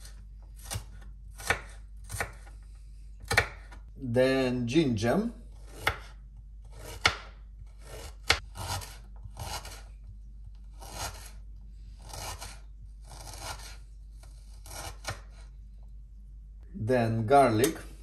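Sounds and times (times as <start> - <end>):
knife slicing ginger: 0.0 - 2.6, 3.2 - 3.8, 5.5 - 11.4, 12.0 - 15.5.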